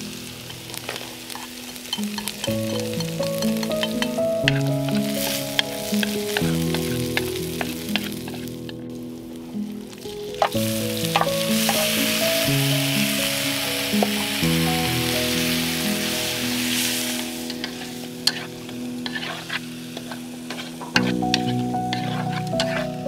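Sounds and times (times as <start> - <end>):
meat sizzling in hot oil: 0.0 - 23.0
chopsticks clicking against wok: 0.5 - 8.5, 20.0 - 22.8.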